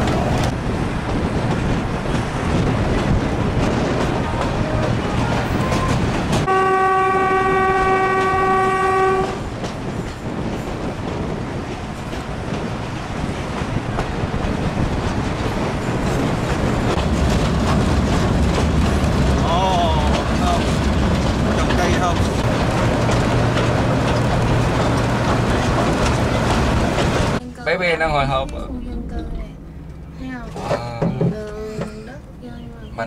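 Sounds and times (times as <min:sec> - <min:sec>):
train rumbling on track: 0:00.0 - 0:33.0
train horn: 0:05.1 - 0:09.5.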